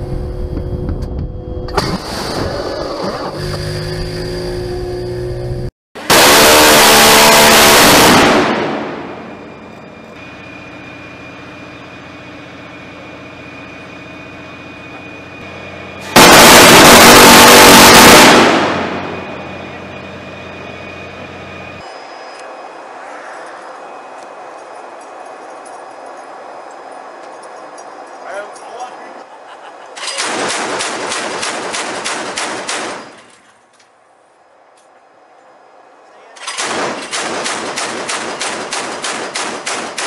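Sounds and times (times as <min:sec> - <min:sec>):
rotary gun firing bursts: 0:30.2 - 0:33.4, 0:36.5 - 0:40.0.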